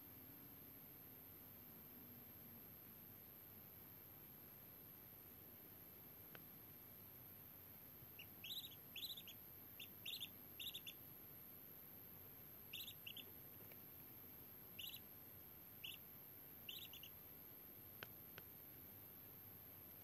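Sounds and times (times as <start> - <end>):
duckling peeping: 8.1 - 11.1, 12.6 - 13.7, 14.7 - 15.1, 15.8 - 17.2.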